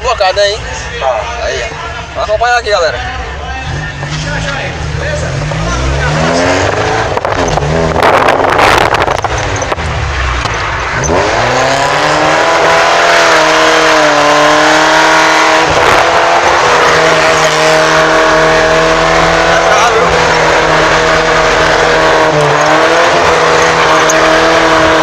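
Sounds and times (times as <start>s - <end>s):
car engine revving hard: 3.7s - 25.0s
tyres squealing: 16.2s - 25.0s.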